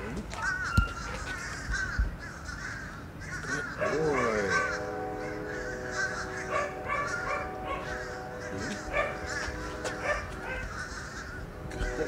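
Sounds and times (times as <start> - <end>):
steady held tone: 3.8 - 12.0.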